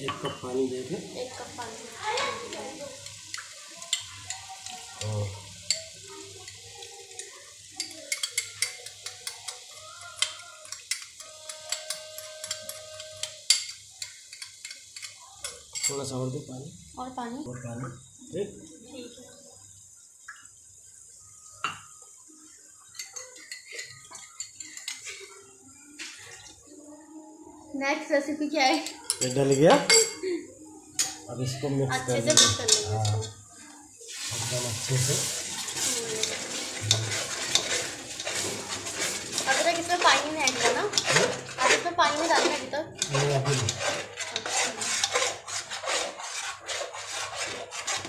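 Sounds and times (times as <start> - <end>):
water pouring into a pot: 0.0 - 27.4, 30.6 - 48.0
spoon scraping a glass tumbler: 7.8 - 16.1, 34.8 - 48.0.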